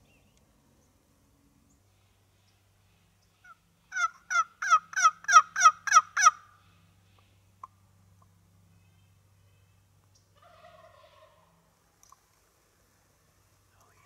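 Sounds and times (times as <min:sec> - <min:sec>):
turkey yelping: 0:03.4 - 0:06.5, 0:10.4 - 0:11.5.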